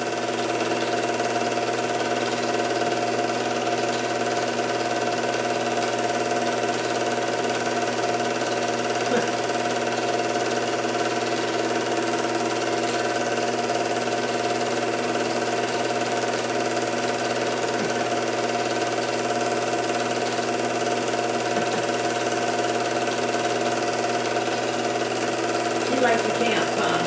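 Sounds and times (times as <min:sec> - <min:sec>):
film projector whirring and clattering: 0:00.0 - 0:27.0.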